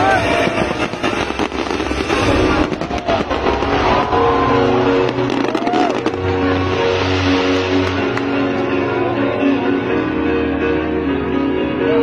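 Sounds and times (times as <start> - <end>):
crowd shouting: 0.0 - 0.9, 1.6 - 6.6
fireworks crackling: 0.0 - 9.3
background music: 0.0 - 12.0
fireworks shell bursts rumbling: 0.2 - 4.4.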